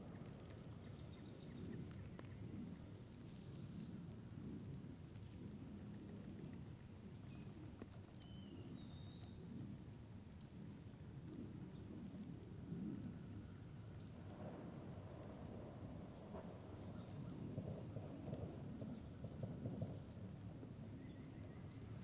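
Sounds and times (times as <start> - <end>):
small birds chirping: 0.0 - 11.0, 13.4 - 22.0
low steady rumble: 0.0 - 22.0
thin whistled bird notes: 8.2 - 9.8.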